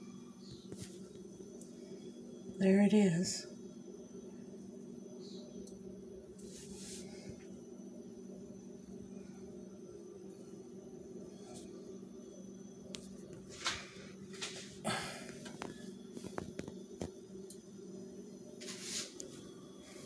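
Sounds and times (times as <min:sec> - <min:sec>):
steady low hum: 0:00.0 - 0:20.0
soft handling scrapes: 0:06.4 - 0:07.2, 0:18.6 - 0:20.0.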